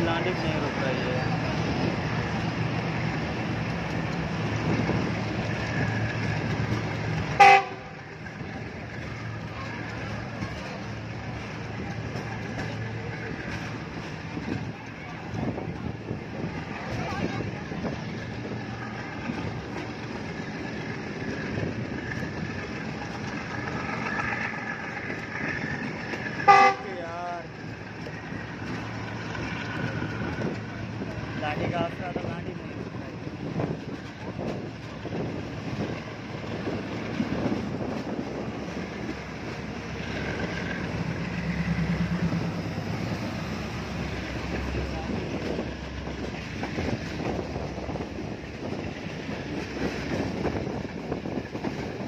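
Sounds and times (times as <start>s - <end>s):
train rumbling: 0.0s - 52.0s
locomotive horn toot: 7.3s - 8.0s, 26.4s - 27.0s.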